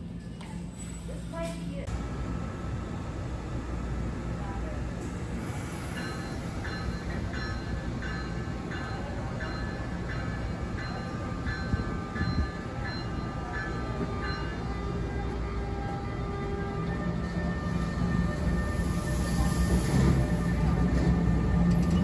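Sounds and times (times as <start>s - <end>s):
electric train rumble: 1.8s - 22.0s
crossing bell ringing: 6.0s - 15.0s.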